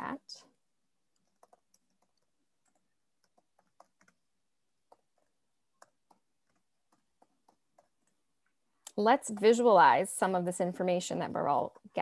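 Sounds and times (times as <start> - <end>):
computer keyboard typing: 1.0 - 9.8.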